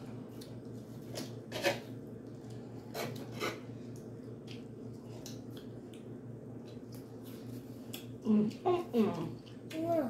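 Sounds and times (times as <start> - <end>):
cutlery scraping a pan: 1.5 - 1.8.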